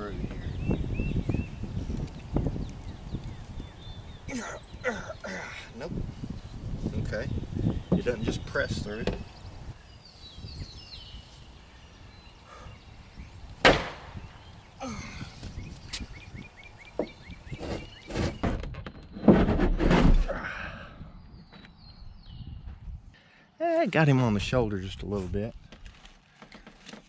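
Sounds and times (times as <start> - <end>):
metal banging and scraping: 17.0 - 20.4.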